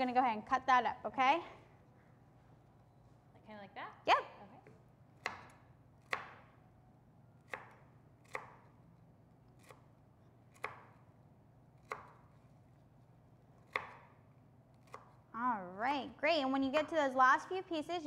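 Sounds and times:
knife chopping on cutting board: 5.2 - 6.5, 7.5 - 8.7, 9.6 - 9.9, 10.5 - 11.0, 11.8 - 12.4, 13.6 - 14.2, 14.8 - 15.2.

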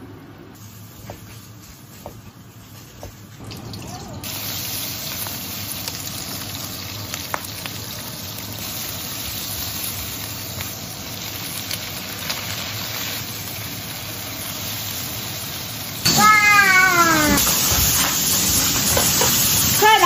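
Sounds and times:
meat sizzling in a wok: 4.0 - 20.0.

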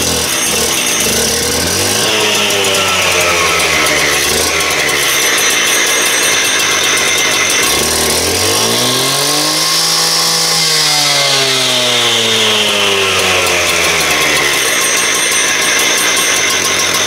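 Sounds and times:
concrete saw two-stroke engine revving: 0.0 - 17.0.

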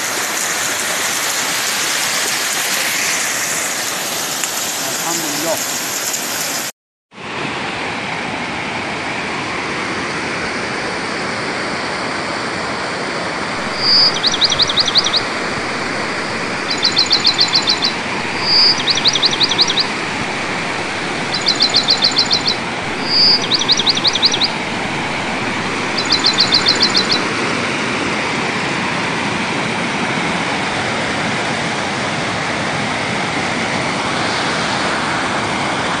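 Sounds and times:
stream rushing over rocks: 0.0 - 6.7, 7.3 - 36.0
bird call with trill: 13.6 - 27.3.

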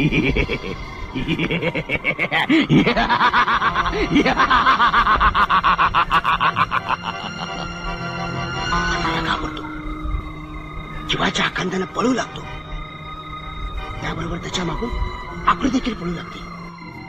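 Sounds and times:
man cackling laugh: 0.0 - 7.9.

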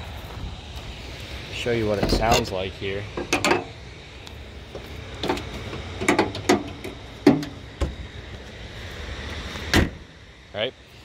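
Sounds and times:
hood slamming shut: 2.0 - 2.5, 9.7 - 10.1.

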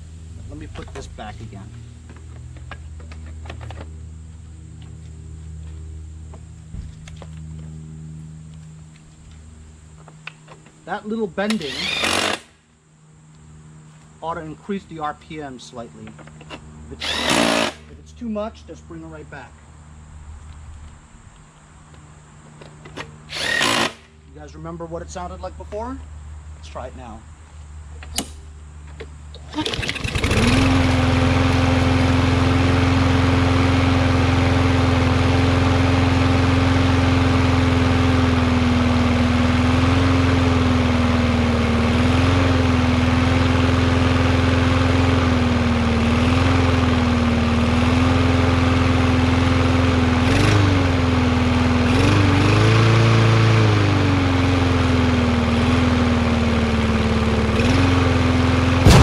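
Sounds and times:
lawn mower engine running: 0.0 - 14.1, 16.0 - 18.1, 27.5 - 59.0
lawn mower engine pull-started: 11.4 - 12.6, 16.2 - 18.0, 28.0 - 59.0.

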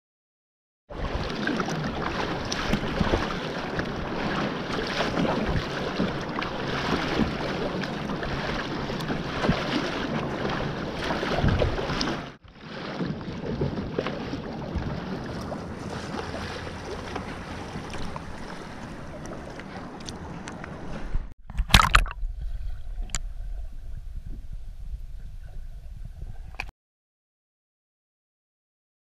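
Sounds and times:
wind buffeting microphone: 0.9 - 12.1, 22.2 - 26.7
water splashing against kayak hull: 0.9 - 24.5.

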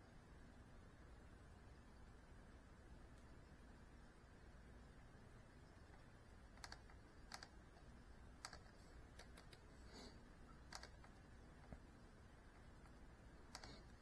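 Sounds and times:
low room hum: 0.0 - 14.0
faint sharp clicks: 5.8 - 9.7, 12.5 - 14.0.

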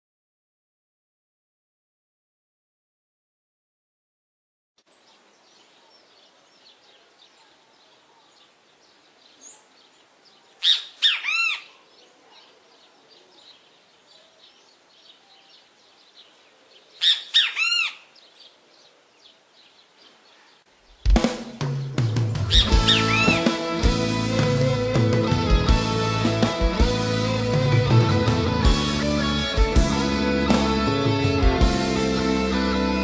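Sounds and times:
faint bird chirping: 4.8 - 23.4
loud bird call: 10.6 - 11.8, 17.0 - 18.2, 22.4 - 23.6
loud music: 21.2 - 33.0.

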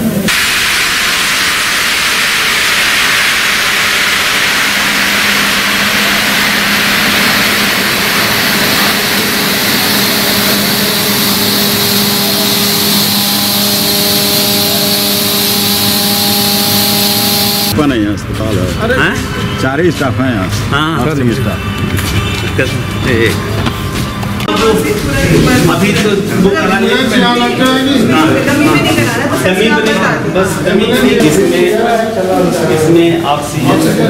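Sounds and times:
rushing hiss of air: 0.3 - 17.7
machine hum: 0.3 - 17.8.

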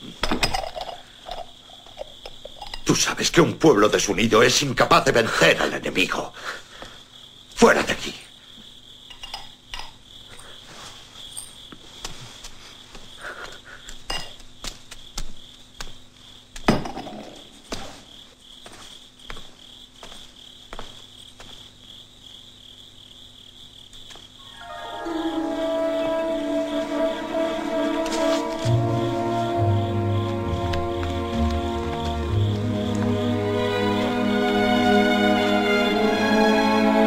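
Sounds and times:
crickets chirring: 0.0 - 37.0
music: 24.4 - 37.0.

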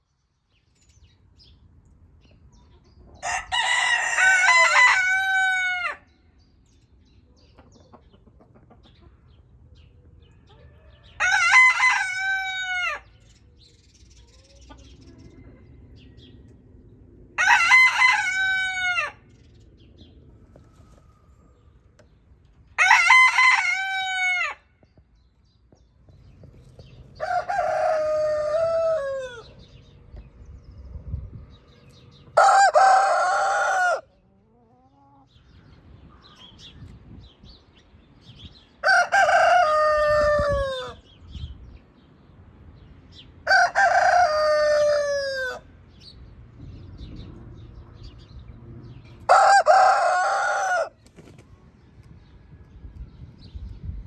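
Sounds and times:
roosters crowing: 3.2 - 6.2, 10.2 - 13.3, 14.2 - 19.9, 22.6 - 24.8, 26.8 - 30.0, 32.0 - 34.6, 38.6 - 41.2, 43.1 - 46.0, 48.9 - 51.4.

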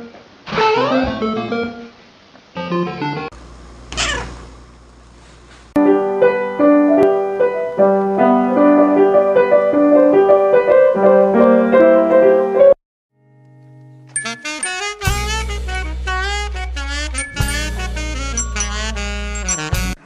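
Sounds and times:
piano chords and melody: 5.8 - 12.8, 14.1 - 15.9, 17.2 - 20.0
toy keyboard wavering notes: 14.1 - 15.3, 17.1 - 20.0.

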